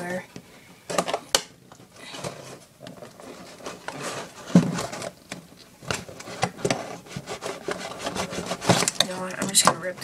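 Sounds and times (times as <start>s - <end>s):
cardboard box rustling and scraping: 2.0s - 5.2s, 6.0s - 10.0s.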